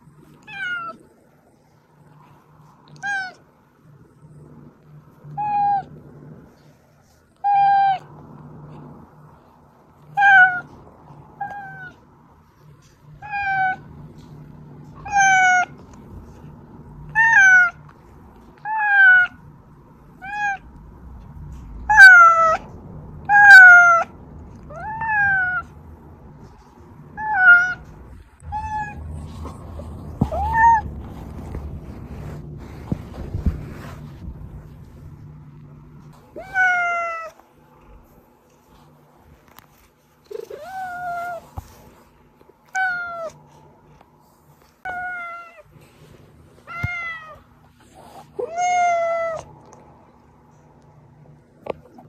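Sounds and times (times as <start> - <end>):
cat meowing: 0.4 - 1.0, 13.2 - 13.9, 14.9 - 16.4, 17.0 - 17.8, 18.5 - 19.4, 20.2 - 20.8, 21.7 - 25.8, 26.5 - 30.9, 36.3 - 37.4, 46.6 - 47.4, 48.4 - 49.5.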